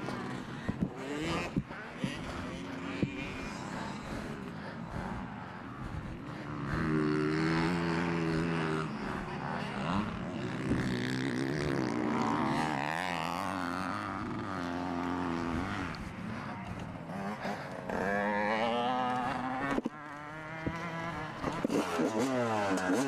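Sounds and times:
two-stroke motorcycle engine revving: 0:00.0 - 0:23.0.

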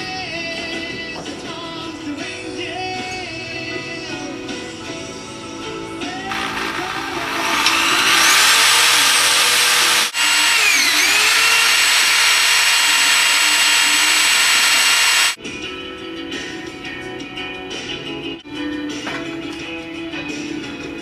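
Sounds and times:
electric drill motor whine: 0:06.3 - 0:15.4.

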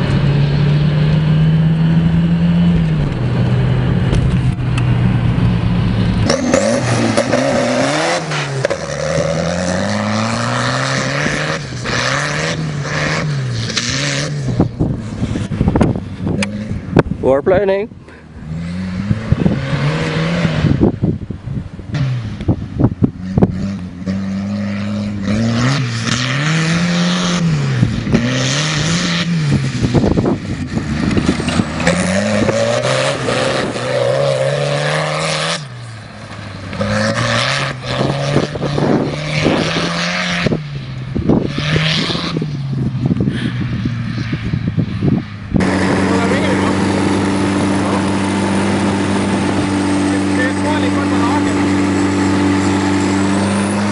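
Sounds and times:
tractor engine revving: 0:00.0 - 0:21.0, 0:23.1 - 0:43.6, 0:45.4 - 0:53.9.

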